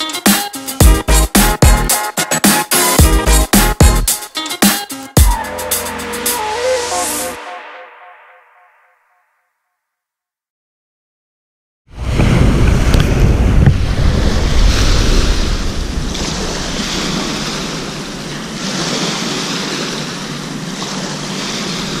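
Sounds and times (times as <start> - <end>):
wind rumbling on microphone: 11.9 - 19.0
small waves lapping on shore: 12.0 - 22.0.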